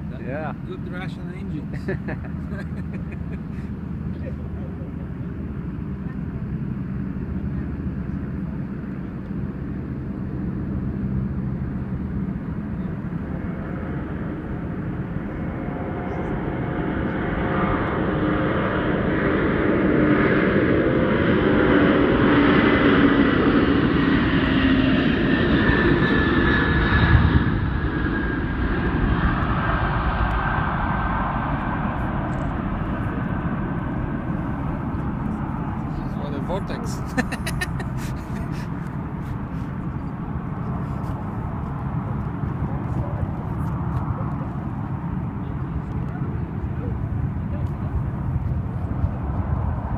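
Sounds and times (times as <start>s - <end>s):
jet engines roaring: 0.0s - 49.9s.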